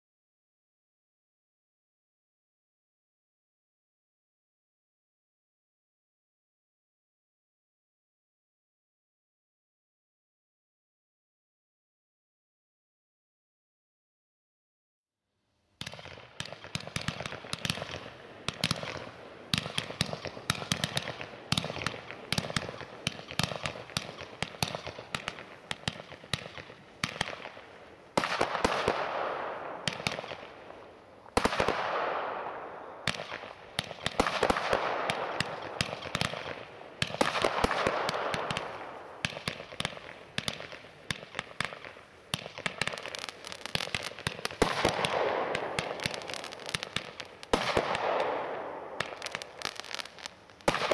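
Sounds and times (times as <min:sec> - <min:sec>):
firework bursts with hiss: 0:15.8 - 0:50.9
firework crackling pops: 0:15.8 - 0:50.9.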